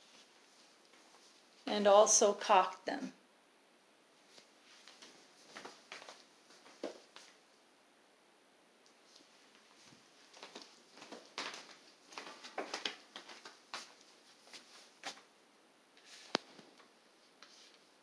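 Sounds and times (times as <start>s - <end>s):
shuffling footsteps on tile: 0.0s - 1.7s, 4.2s - 7.4s, 9.0s - 15.3s.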